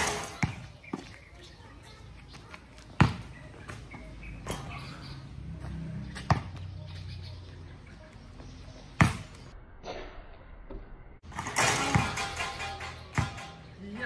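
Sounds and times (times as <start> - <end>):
basketball bouncing on concrete: 0.0 - 1.2, 2.7 - 4.6, 5.6 - 6.7, 8.9 - 10.0, 10.7 - 13.6.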